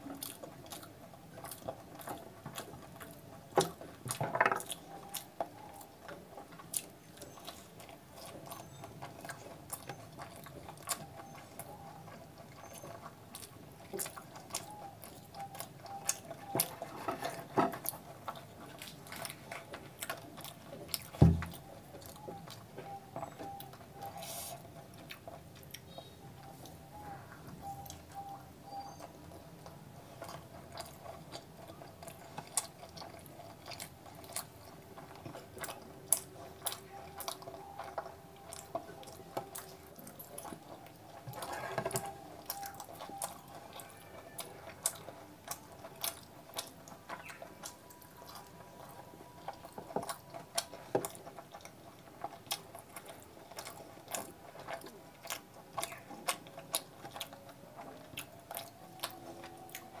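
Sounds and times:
fingers squishing through curry: 0:00.0 - 1:00.0
wet chewing and mouth clicks: 0:00.0 - 1:00.0.

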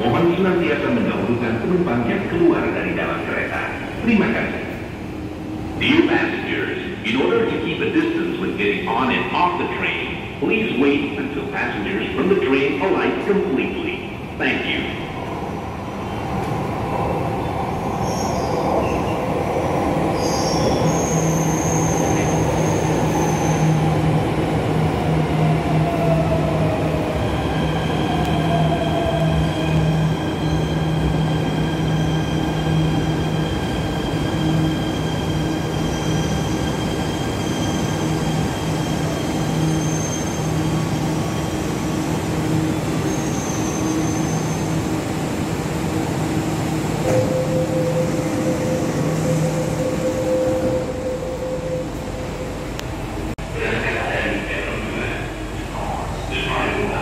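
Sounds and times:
falling whine of slowing train: 0:00.0 - 0:57.0
stopped train humming: 0:00.0 - 0:57.0
train rumbling: 0:00.0 - 0:57.0
wheel and brake squeals: 0:20.2 - 0:23.8, 0:34.2 - 0:41.1, 0:43.0 - 0:44.8.

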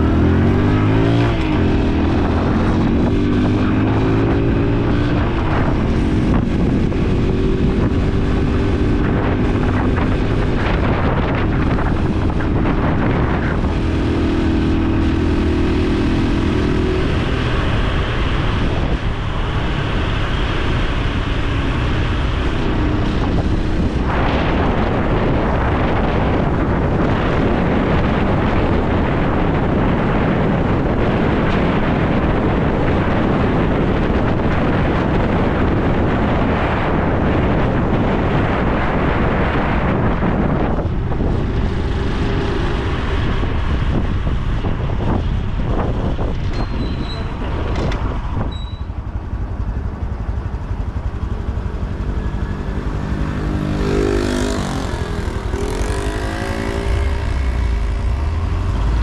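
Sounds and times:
motorcycle engine: 0:00.0 - 0:59.0
wind noise: 0:00.0 - 0:59.0.

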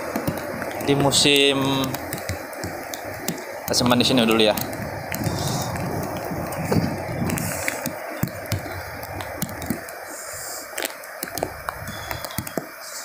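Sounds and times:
wind buffeting microphone: 0:00.0 - 0:10.0, 0:11.3 - 0:12.5
heavy rain: 0:00.0 - 0:13.0
sharp taps: 0:01.8 - 0:03.5.

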